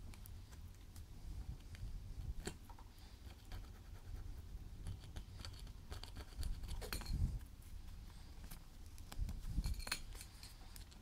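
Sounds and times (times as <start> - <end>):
fingernail scratching sealant: 3.3 - 7.0.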